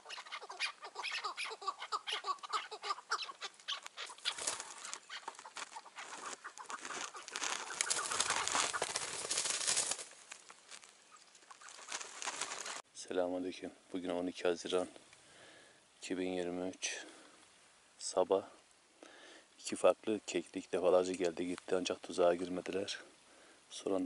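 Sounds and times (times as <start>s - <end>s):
rustling scuffling noise: 3.6s - 12.8s.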